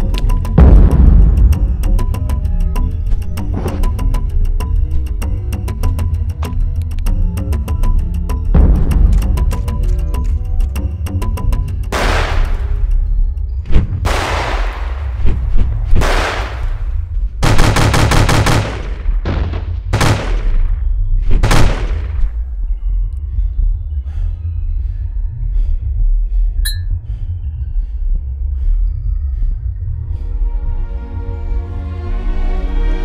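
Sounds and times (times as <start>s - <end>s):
deep steady rumble: 0.0s - 31.9s
quiet music with soft hits: 0.0s - 33.0s
machine-gun rattling burst: 17.4s - 18.9s.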